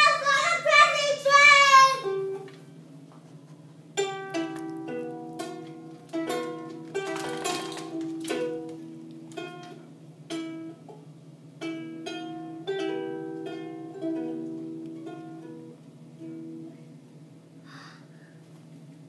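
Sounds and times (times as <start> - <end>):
toy guitar plucks: 4.0 - 10.8.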